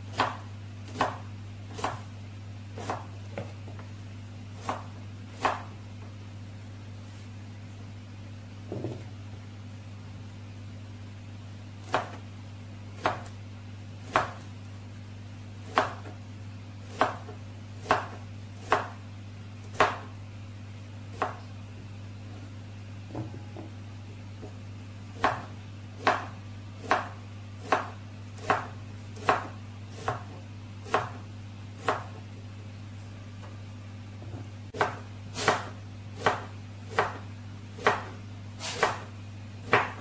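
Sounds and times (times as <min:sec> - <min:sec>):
knife slicing on cutting board: 0:34.8 - 0:37.1, 0:37.8 - 0:39.1.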